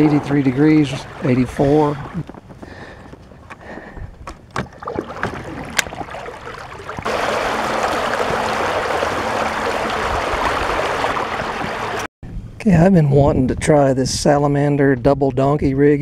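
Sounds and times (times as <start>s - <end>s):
water rushing and splashing: 0.0s - 2.3s, 4.5s - 12.1s.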